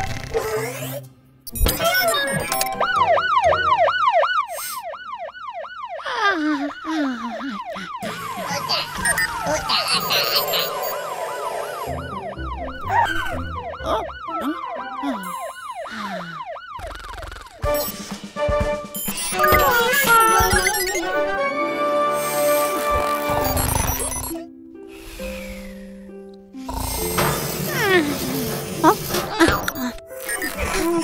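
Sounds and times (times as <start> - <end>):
cartoon siren whooping: 2.0 - 17.6.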